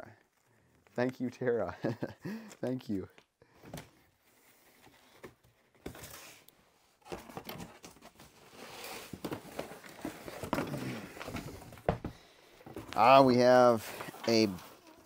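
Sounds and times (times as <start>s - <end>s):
packaging rustling and crinkling: 7.0s - 12.0s.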